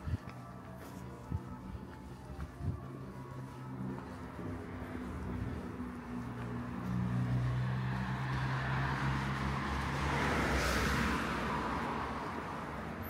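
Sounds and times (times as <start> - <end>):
car driving past: 4.4 - 13.0.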